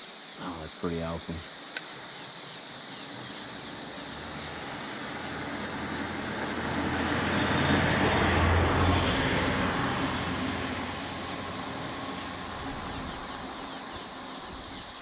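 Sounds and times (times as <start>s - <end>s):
vehicle engine hum: 3.1s - 15.0s.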